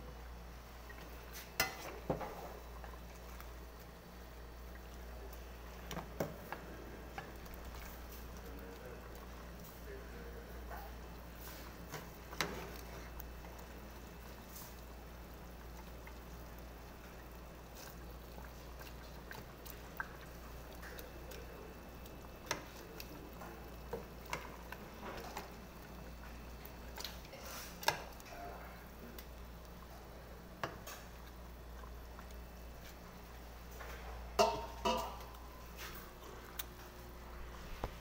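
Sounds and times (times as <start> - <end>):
soft liquid sloshing: 0.0 - 38.0
steady low hum: 0.0 - 38.0
ladle clinking against pot: 34.4 - 35.3.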